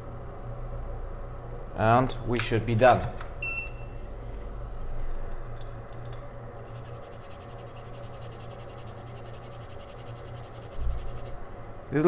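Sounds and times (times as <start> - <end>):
low equipment hum: 0.0 - 12.0
soldering tools scratching: 6.6 - 11.4
fine rapid buzz: 6.6 - 11.7.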